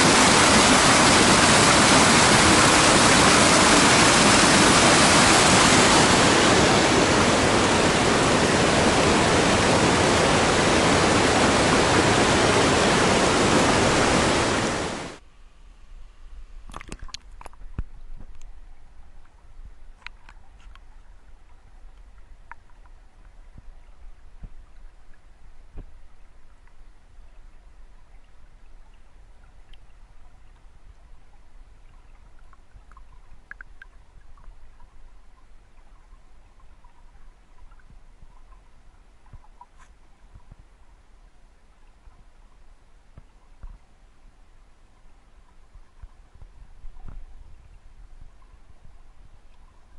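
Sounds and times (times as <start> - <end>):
river rushing over rocks: 0.0 - 15.2
underwater river rumble: 0.0 - 15.2, 16.4 - 49.9
small underwater clicks: 16.6 - 41.0, 41.7 - 44.0, 44.9 - 49.9.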